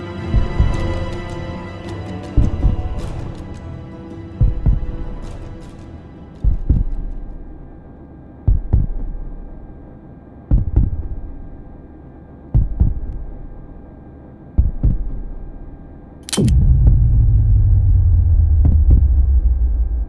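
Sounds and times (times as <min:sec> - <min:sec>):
faint steady hum: 0:00.0 - 0:20.0
heartbeat thumps: 0:00.3 - 0:01.2, 0:02.4 - 0:03.4, 0:04.4 - 0:05.3, 0:06.4 - 0:07.6, 0:08.4 - 0:09.7, 0:10.5 - 0:11.7, 0:12.5 - 0:13.8, 0:14.6 - 0:15.7, 0:16.4 - 0:20.0.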